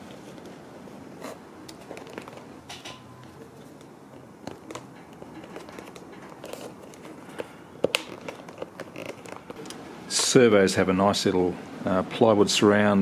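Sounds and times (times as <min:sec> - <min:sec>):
plastic clicks and scratching: 0:01.7 - 0:03.0, 0:03.8 - 0:09.8.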